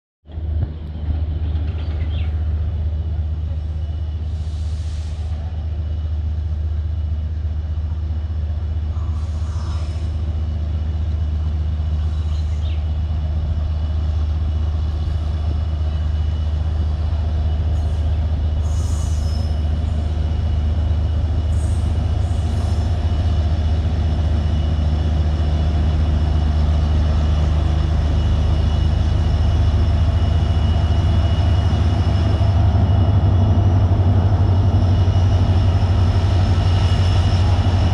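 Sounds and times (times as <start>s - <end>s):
diesel locomotive engine rumbling: 0.2s - 37.9s
faint high-pitched squeals: 17.5s - 20.6s.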